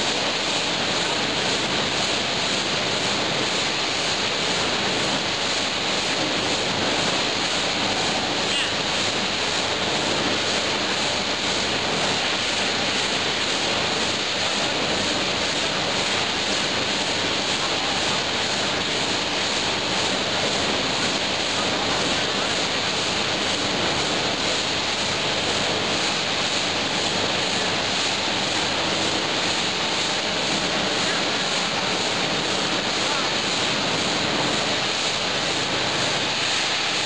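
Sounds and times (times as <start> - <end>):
steady machine noise: 0.0 - 37.0
water churning and splashing: 0.0 - 37.0.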